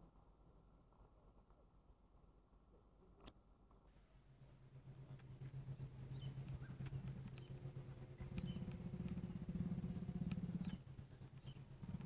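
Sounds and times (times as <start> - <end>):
vehicle engine idling: 4.1 - 12.0
faint bird chirps: 5.0 - 12.0.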